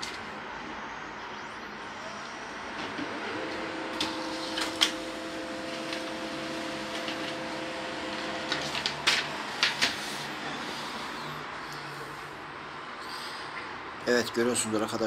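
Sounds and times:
printer motor whine: 0.7 - 12.0
paper path clicks: 4.0 - 5.0, 8.1 - 10.3.

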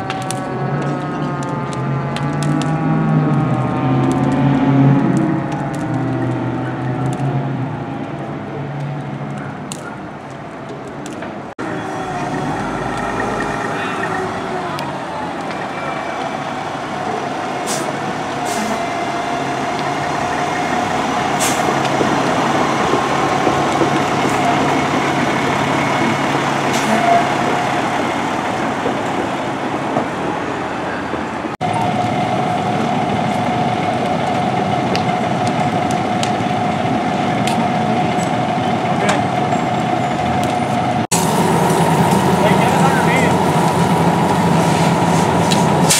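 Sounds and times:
diesel engine and pump droning: 11.6 - 45.9.

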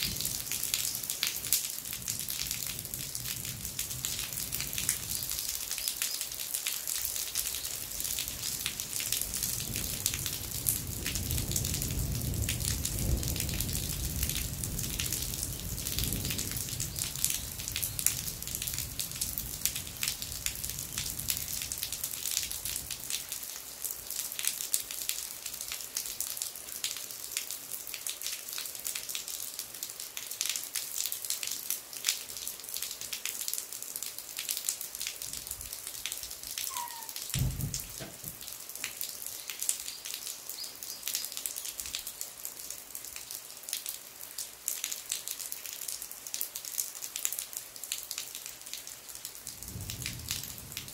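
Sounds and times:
rain hiss: 0.0 - 50.9
water dripping from eaves: 0.0 - 50.9
dull thump: 37.4 - 38.4.

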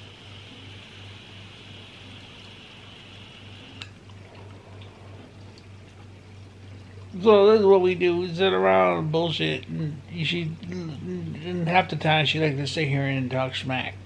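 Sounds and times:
electronic cigarette coil sizzling: 0.0 - 4.0.

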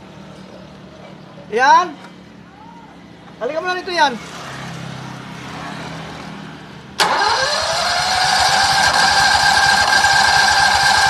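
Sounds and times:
generator starter cranking engine: 7.0 - 11.0
starter whine: 7.0 - 11.0.

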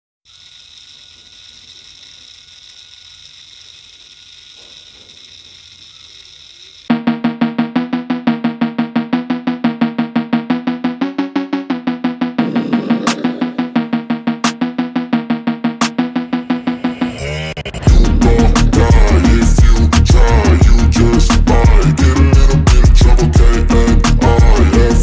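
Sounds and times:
small electric motor humming: 0.3 - 6.9
music with pulsing beat: 6.9 - 25.0.

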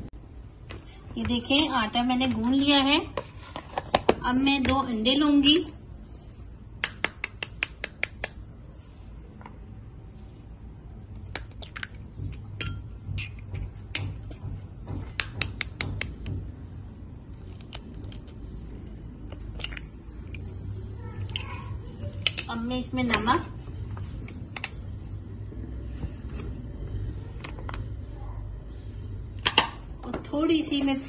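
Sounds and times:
knife tapping eggs: 6.8 - 8.4, 11.3 - 16.4
eggs cracking: 11.2 - 14.4, 17.2 - 20.6, 21.2 - 21.6.

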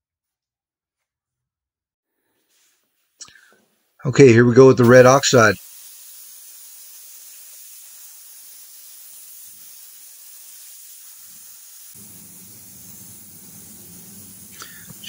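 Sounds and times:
spray gun hissing: 4.3 - 15.0.

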